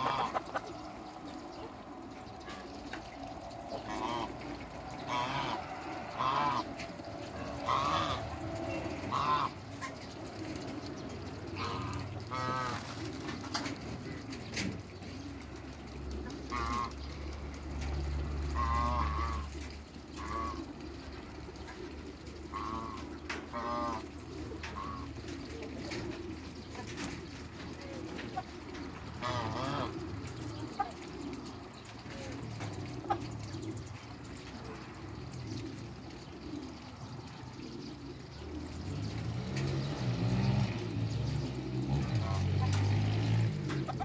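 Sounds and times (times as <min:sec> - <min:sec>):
geese honking: 0:00.0 - 0:00.9, 0:03.8 - 0:10.0, 0:11.5 - 0:13.0, 0:16.4 - 0:17.0, 0:18.5 - 0:19.5, 0:20.2 - 0:20.7, 0:22.4 - 0:25.3, 0:27.8 - 0:31.5.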